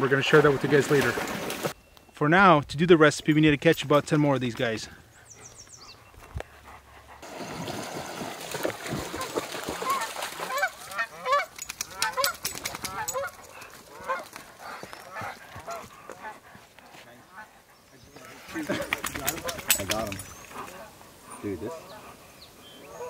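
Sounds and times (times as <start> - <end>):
geese honking: 9.8 - 16.4.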